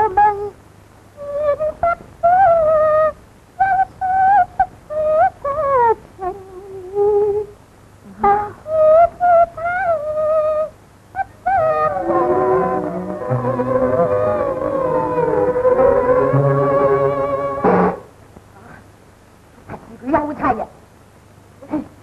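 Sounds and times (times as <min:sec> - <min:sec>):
high opera singing: 0:00.0 - 0:00.6, 0:01.2 - 0:18.1.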